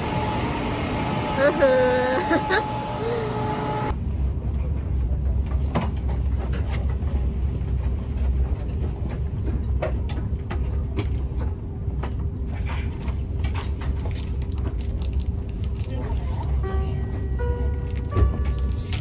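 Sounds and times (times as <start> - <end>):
train carriage low rumble: 0.0 - 19.0.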